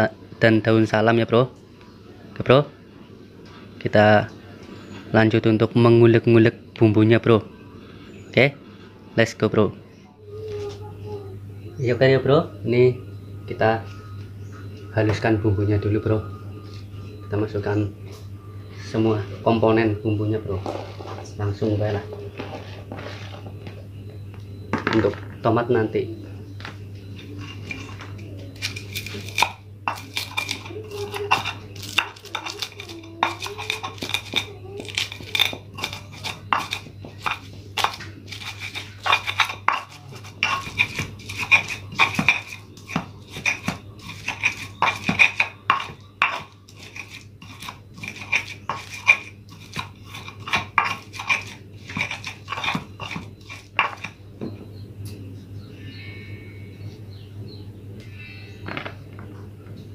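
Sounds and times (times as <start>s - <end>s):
grinding scrapes: 27.3s - 54.2s
pestle pounding in mortar: 28.7s - 54.2s.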